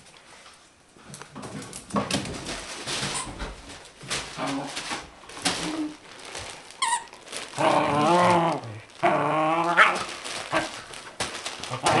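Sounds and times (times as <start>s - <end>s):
dogs play growling: 4.3s - 5.0s, 7.5s - 10.9s.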